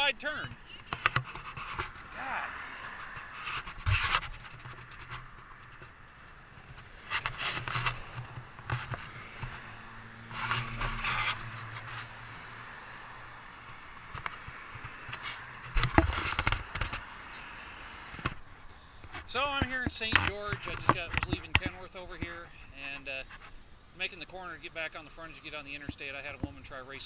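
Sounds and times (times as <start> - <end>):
vehicle engine hum passing: 0.0 - 19.2
microphone handling scrapes: 0.4 - 12.2, 14.1 - 17.1.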